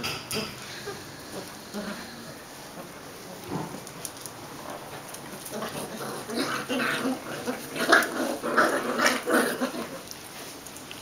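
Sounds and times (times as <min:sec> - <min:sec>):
dogs growling and yelping: 0:00.6 - 0:03.0, 0:05.3 - 0:10.2.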